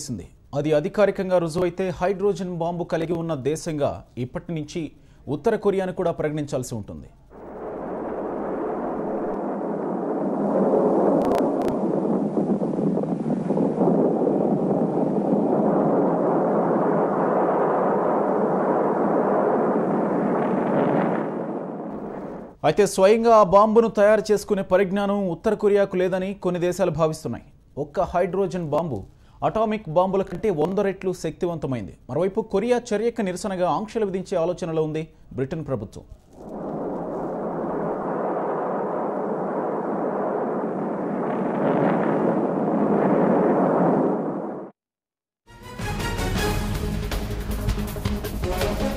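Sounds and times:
explosion blast roar: 0:07.3 - 0:22.6, 0:36.4 - 0:44.7.

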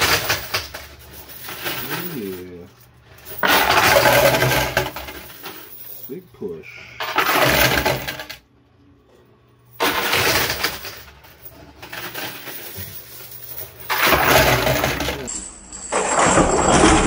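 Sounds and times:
coins clattering: 0:00.0 - 0:08.4, 0:09.7 - 0:17.0.

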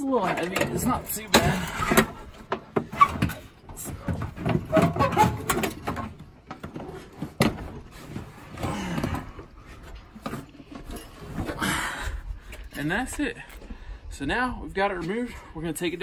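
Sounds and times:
metal battery pack clunking and scraping: 0:00.0 - 0:11.8.

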